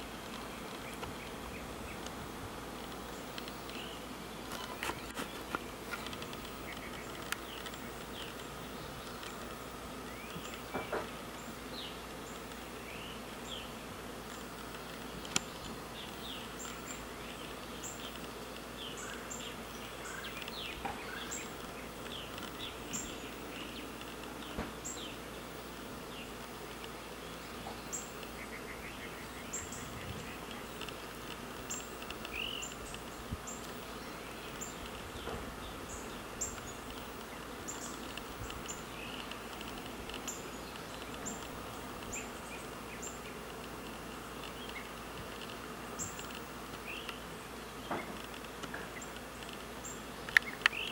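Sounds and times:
bees buzzing: 0.0 - 50.9.

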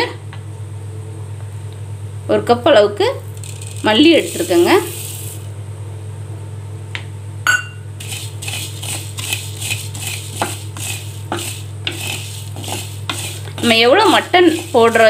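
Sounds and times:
seeds pouring into clay pan: 3.2 - 5.5, 8.0 - 15.0
wooden spatula stirring seeds: 3.3 - 5.5, 8.0 - 15.0
sharp clink: 7.5 - 7.8.

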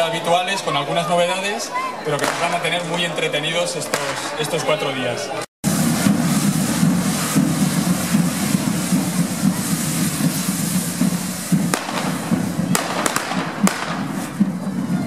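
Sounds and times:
firecracker cracks: 2.2 - 2.6, 3.9 - 4.4, 5.7 - 14.8
fireworks hissing sparks: 5.6 - 15.0.

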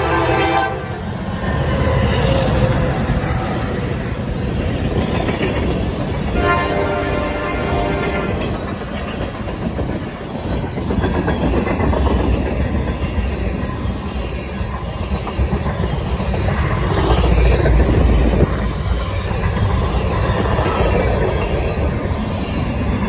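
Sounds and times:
locomotive horn: 0.0 - 1.0, 6.3 - 8.5
freight train rumbling past: 0.0 - 23.0
wheels clicking over rail joints: 4.4 - 6.7, 7.3 - 23.0.

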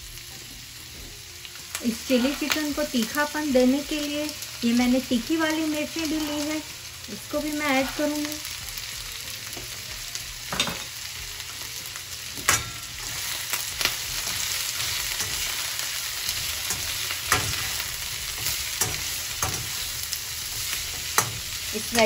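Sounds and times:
vegetables sizzling in wok: 0.0 - 22.0
metal spatula knocking on pan: 16.7 - 17.7, 18.4 - 19.8.

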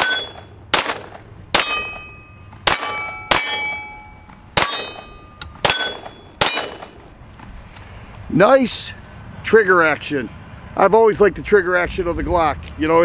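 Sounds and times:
steel target clanging: 0.0 - 0.6, 1.5 - 7.0
pistol shots: 0.0 - 3.8, 4.6 - 7.0.

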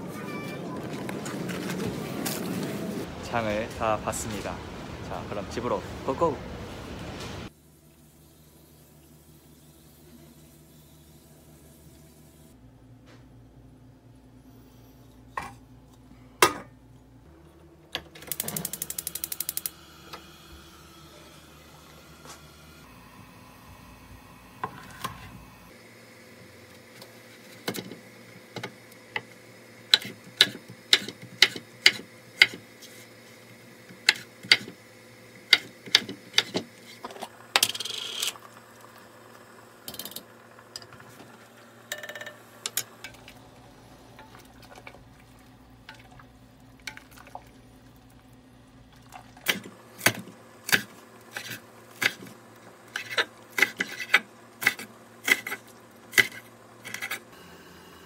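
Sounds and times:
knife scrape: 51.3 - 52.3, 52.9 - 57.2.

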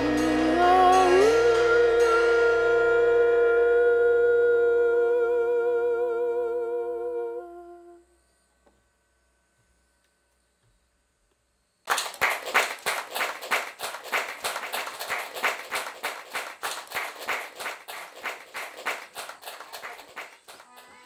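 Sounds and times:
audience clapping: 11.9 - 21.0.

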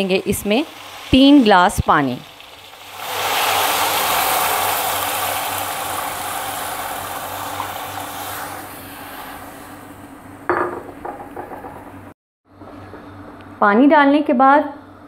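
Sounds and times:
water pouring into a pot: 0.0 - 9.6.

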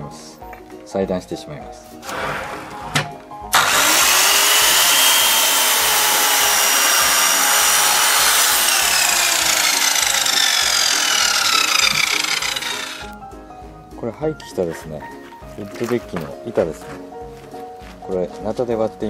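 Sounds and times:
miter saw cutting wood: 3.5 - 13.2.

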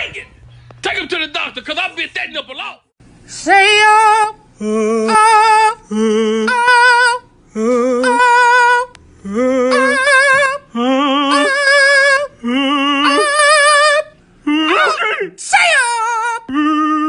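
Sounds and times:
two voices singing held notes: 4.2 - 15.1.

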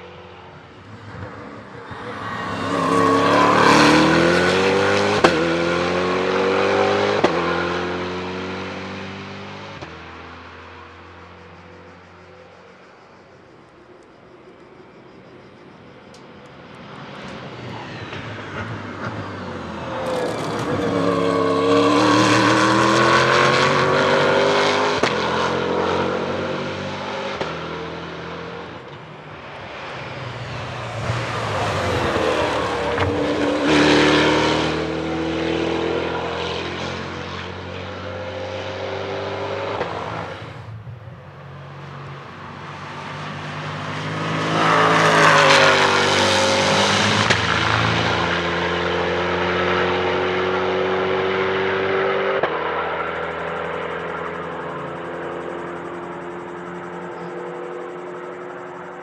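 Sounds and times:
race car engine revving: 1.1 - 9.9, 17.8 - 28.5, 30.5 - 40.4, 43.1 - 59.0.

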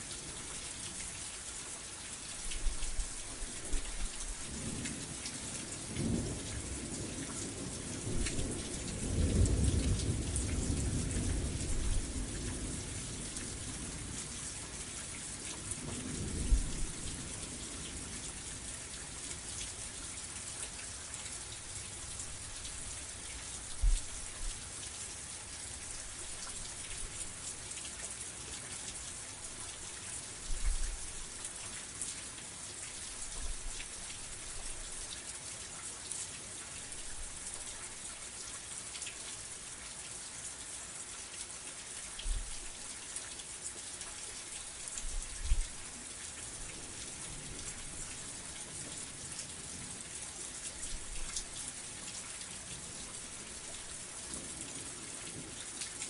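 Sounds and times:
rain hissing: 0.0 - 35.1.

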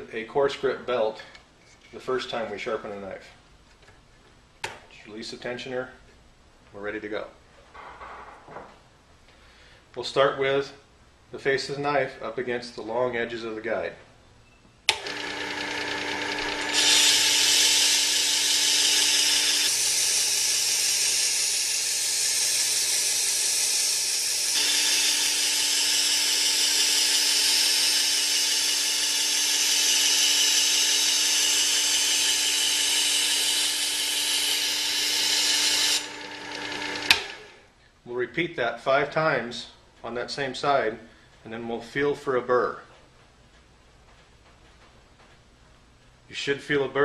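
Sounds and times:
belt sharpener motor humming: 14.9 - 37.6
knife grinding on abrasive belt: 15.1 - 37.3.

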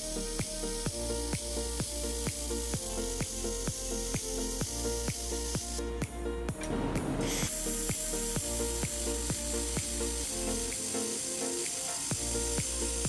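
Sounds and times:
background music with steady beat: 0.0 - 13.0
laser welder hissing: 7.2 - 13.0.

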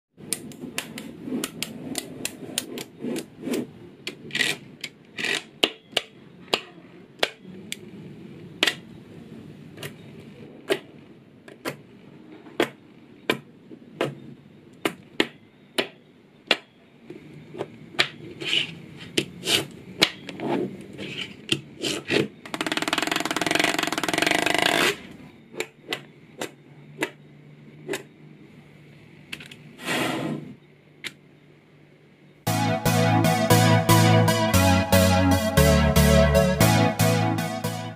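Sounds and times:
magnetic balls clicking: 22.5 - 25.0.

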